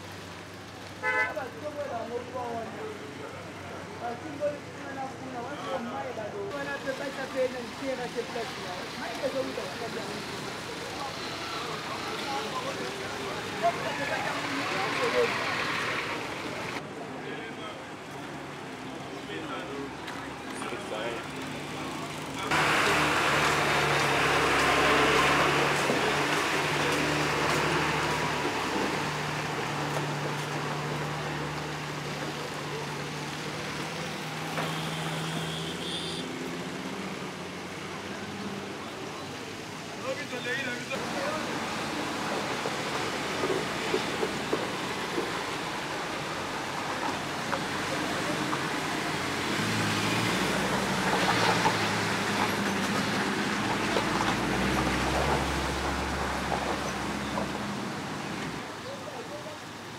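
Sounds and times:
traffic noise: 0.0 - 59.9
bus engine humming: 9.4 - 16.8, 20.2 - 58.7
water washing: 22.5 - 34.6, 41.0 - 58.8.

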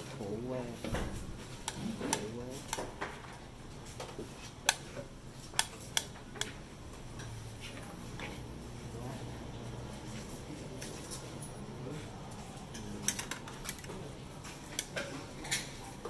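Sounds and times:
tongs clicking against trays: 1.6 - 2.9, 4.6 - 4.8, 5.5 - 6.6.

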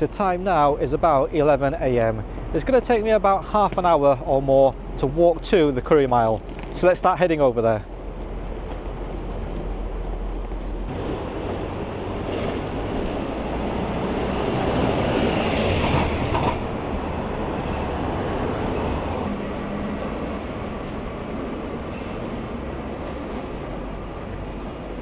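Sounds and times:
city street traffic: 0.0 - 25.0
bus passing: 7.8 - 25.0.

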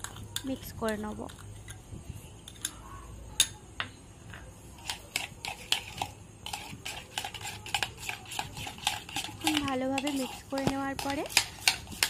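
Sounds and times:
wet mixing strokes: 4.8 - 12.0.

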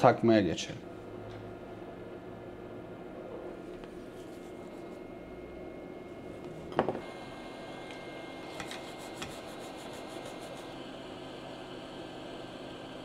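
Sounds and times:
hum of bench equipment: 0.0 - 13.0
cotton swab rubbing circuit board: 8.6 - 10.8.

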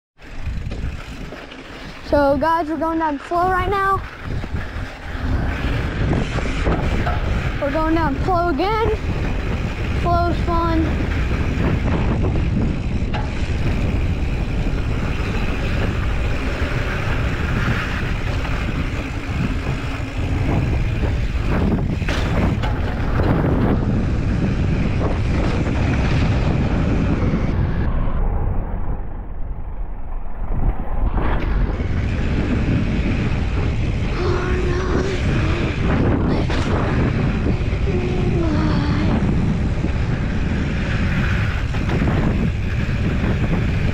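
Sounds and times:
bike tyres rolling on dirt: 0.2 - 43.9
wind over microphone: 0.2 - 43.9
bike knocking over bumps: 11.0 - 27.1.

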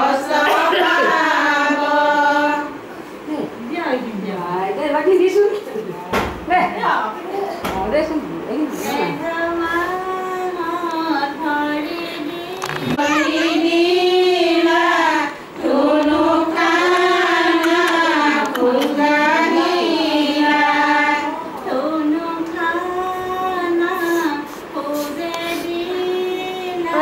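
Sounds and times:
high female voices singing: 0.0 - 3.0, 8.9 - 27.0.

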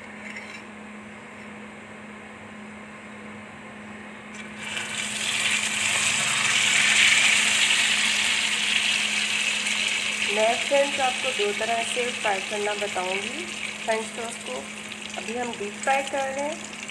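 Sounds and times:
low steady hum: 0.0 - 16.9
bread sizzling in hot oil: 4.5 - 16.9.

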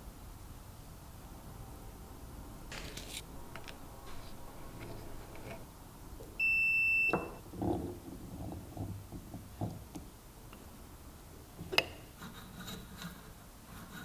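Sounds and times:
multimeter beep: 6.4 - 7.4.

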